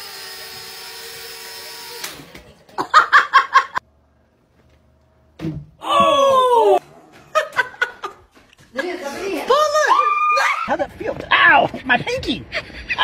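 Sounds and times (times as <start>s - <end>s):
person laughing: 11.7s - 13.0s.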